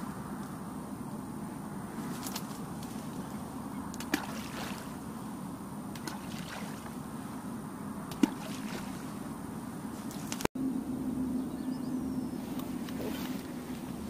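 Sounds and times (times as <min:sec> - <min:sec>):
bait balls splashing into water: 0:04.0 - 0:04.9, 0:08.1 - 0:09.0.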